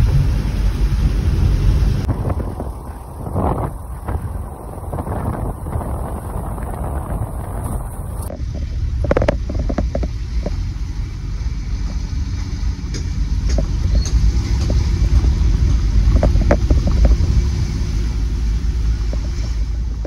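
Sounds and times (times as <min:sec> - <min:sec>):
vehicle cabin engine rumble: 0:00.0 - 0:20.0
small knocks and rattles: 0:08.3 - 0:10.6, 0:12.9 - 0:17.3.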